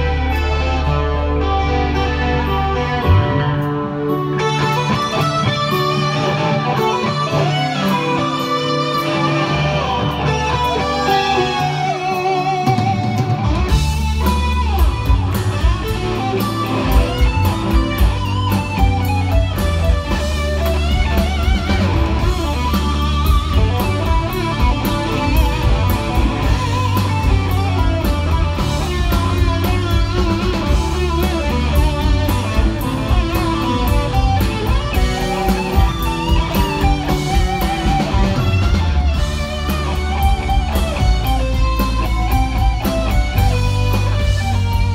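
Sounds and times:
drums: 0.0s - 44.9s
electric guitar lead: 0.0s - 44.9s
heavy low bass notes: 12.8s - 44.9s.

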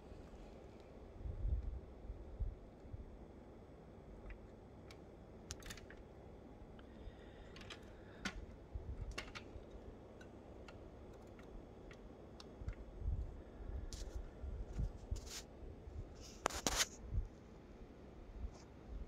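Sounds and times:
plastic model doors clicking: 7.5s - 12.5s.

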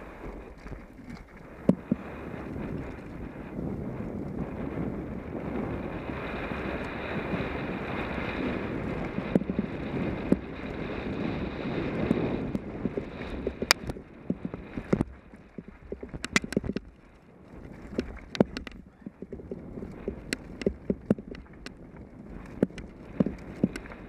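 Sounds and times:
wind rushing over microphone: 0.0s - 24.0s
bike clicks and rattles: 6.3s - 24.0s
tyres rolling on dirt: 6.3s - 24.0s.

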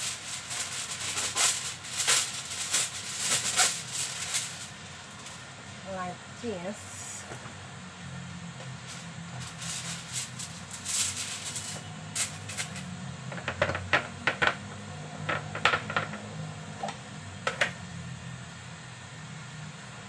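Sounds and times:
aluminium foil crinkling: 0.0s - 5.4s, 8.8s - 13.8s.

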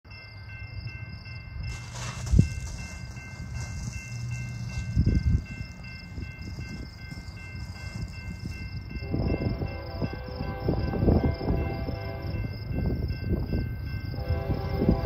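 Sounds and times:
freight train rumbling: 0.1s - 15.0s.

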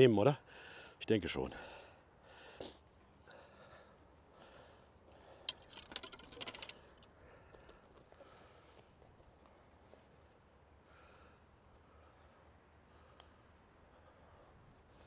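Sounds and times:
light clicks and rustles: 5.1s - 10.4s.

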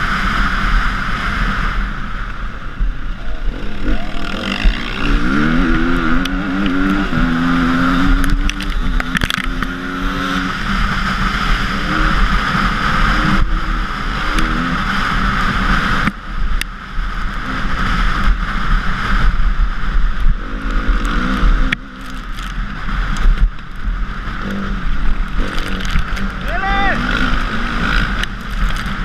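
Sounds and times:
motorcycle engine revving: 0.0s - 29.0s
wind noise on microphone: 0.0s - 29.0s
tyres on gravel: 25.2s - 29.0s.

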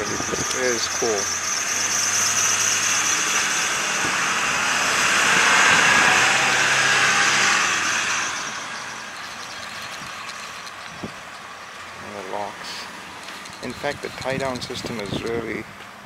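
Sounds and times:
road vehicle passing by: 0.0s - 16.0s.

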